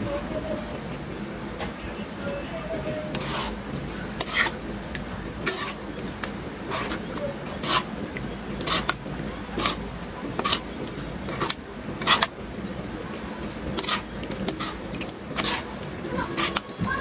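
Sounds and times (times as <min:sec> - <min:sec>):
metal spoon scraping a wok: 0:03.0 - 0:04.7, 0:05.4 - 0:12.4, 0:13.5 - 0:16.8.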